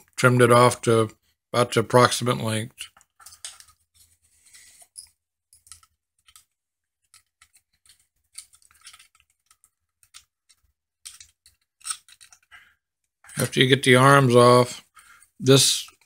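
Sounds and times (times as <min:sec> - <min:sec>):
plastic toy parts clicking: 0:05.6 - 0:12.5.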